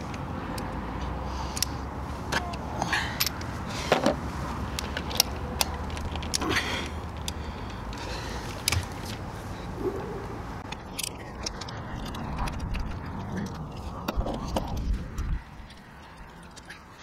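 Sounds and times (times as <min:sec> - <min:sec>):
sharp metallic clicks: 0:04.7 - 0:09.2, 0:10.6 - 0:17.0
key scraping in a lock: 0:10.7 - 0:15.3.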